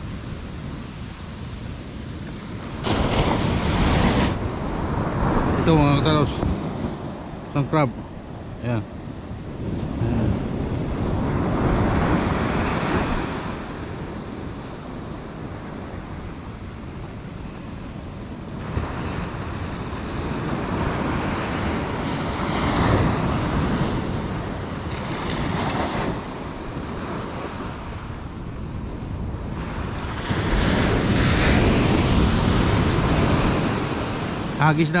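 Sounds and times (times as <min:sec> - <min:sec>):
ocean surf breaking on beach: 0:00.0 - 0:35.0
wind buffeting microphone: 0:00.0 - 0:35.0.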